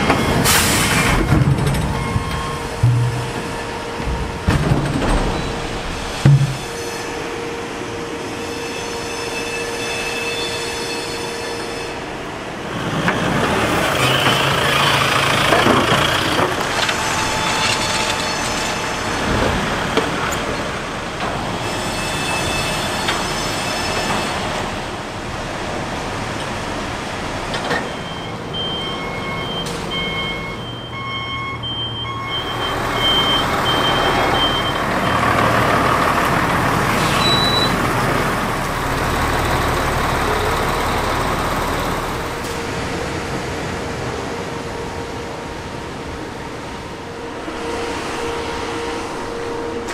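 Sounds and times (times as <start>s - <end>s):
diesel truck engine running: 0.0s - 6.6s, 12.8s - 21.2s, 31.4s - 45.4s
backup alarm beeps: 1.2s - 4.5s, 27.7s - 35.3s, 37.1s - 37.8s
sharp metal knocks: 2.8s - 5.4s, 6.2s - 6.7s.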